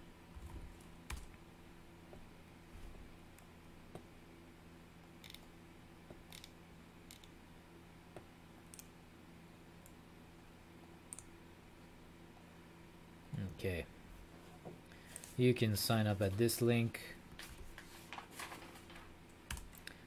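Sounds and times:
low room hum: 0:00.0 - 0:20.0
mouse and keyboard clicks: 0:05.2 - 0:05.4, 0:06.3 - 0:07.3.

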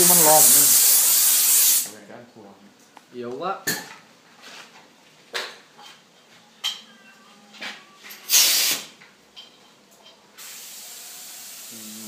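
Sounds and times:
compressed air hissing: 0:00.0 - 0:01.9, 0:08.3 - 0:08.9, 0:10.4 - 0:12.0.

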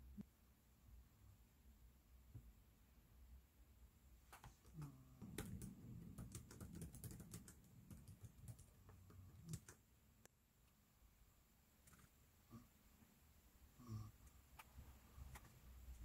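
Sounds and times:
laptop keyboard typing: 0:04.4 - 0:09.8.

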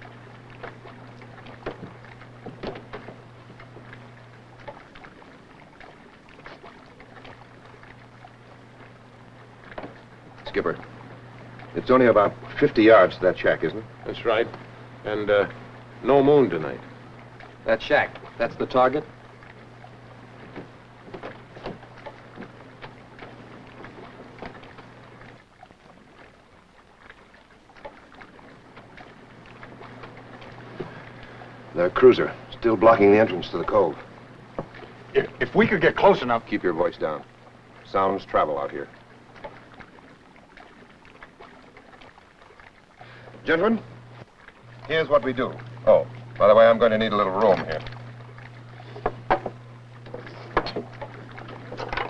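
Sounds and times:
film soundtrack low hum: 0:00.0 - 0:52.0
film clicks and crackles: 0:43.0 - 0:52.0.

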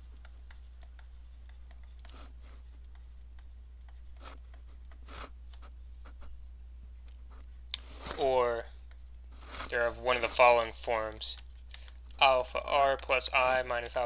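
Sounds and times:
stylus scratching on a tablet: 0:00.0 - 0:06.4, 0:09.3 - 0:10.3
low electrical hum: 0:00.0 - 0:14.0.

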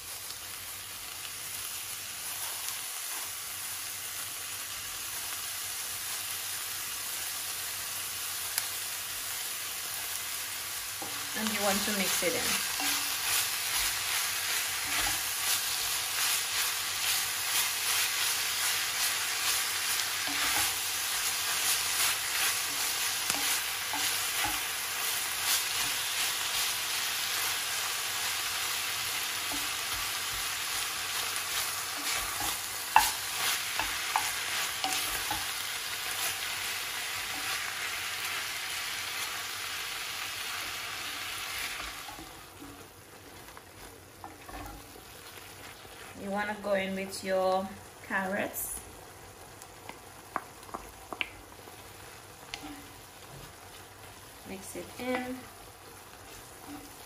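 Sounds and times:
meat sizzling in a pan: 0:00.0 - 0:57.0
wooden spoon scraping a pan: 0:11.0 - 0:27.5, 0:29.0 - 0:37.8, 0:40.6 - 0:46.4, 0:52.5 - 0:55.5.

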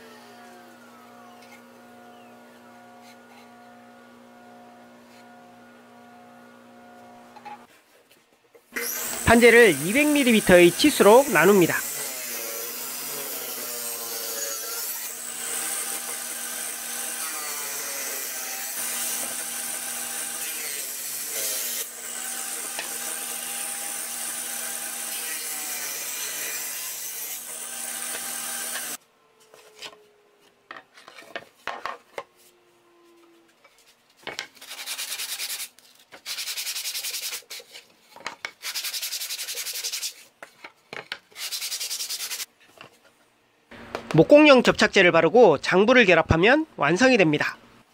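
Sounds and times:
table saw cutting wood: 0:00.0 - 0:07.7, 0:08.7 - 0:29.0
sanding block rubbing wood: 0:34.6 - 0:37.9, 0:38.6 - 0:40.3, 0:41.3 - 0:42.5.

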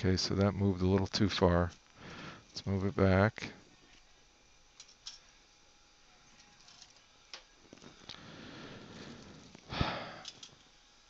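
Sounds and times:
person breathing: 0:02.0 - 0:02.5, 0:08.0 - 0:10.4.

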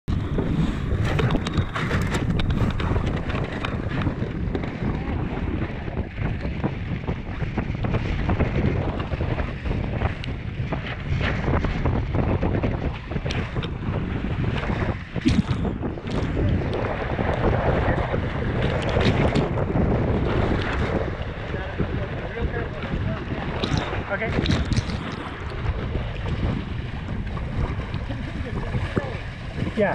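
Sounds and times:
water splashing against hull: 0:00.0 - 0:29.9
wind buffeting microphone: 0:00.0 - 0:29.9.

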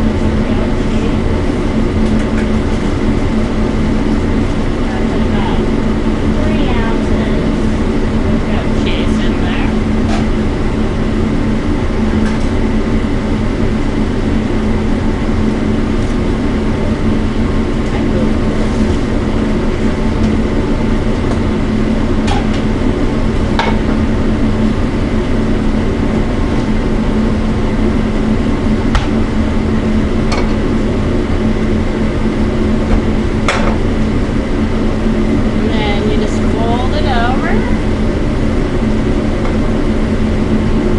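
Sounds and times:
exhaust hood fan drone: 0:00.0 - 0:40.9.

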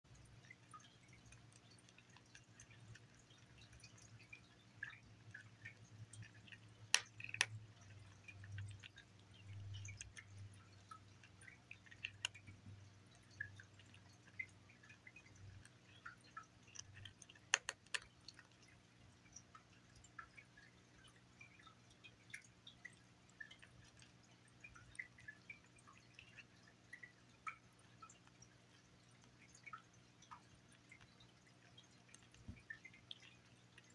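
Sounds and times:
kitten crunching kibble: 0:00.2 - 0:20.2, 0:22.0 - 0:33.9
sharp clicks: 0:16.7 - 0:18.5.

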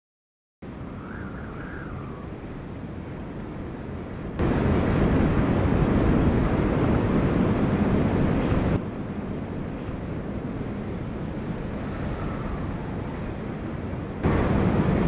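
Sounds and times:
high wind howl: 0:00.6 - 0:15.0
low wind rumble: 0:00.6 - 0:15.0
storm wind rushing: 0:00.6 - 0:15.0
driving rain: 0:04.4 - 0:10.2, 0:14.2 - 0:15.0.

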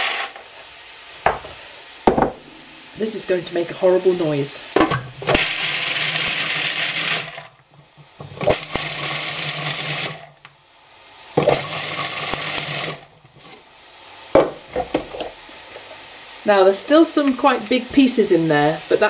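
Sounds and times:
food processor chopping nuts: 0:05.2 - 0:07.5, 0:08.3 - 0:10.3, 0:11.4 - 0:13.1.

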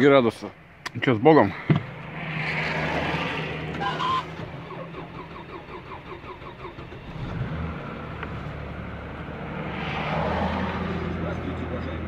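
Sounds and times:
car engine running steadily: 0:03.5 - 0:09.6.

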